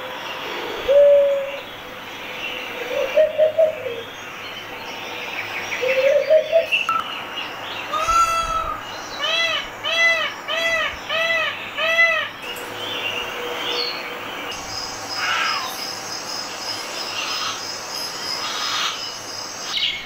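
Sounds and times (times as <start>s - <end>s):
wavering bird call: 7.8s - 12.4s, 15.1s - 15.9s
peacock calling: 7.8s - 16.0s, 18.4s - 19.1s.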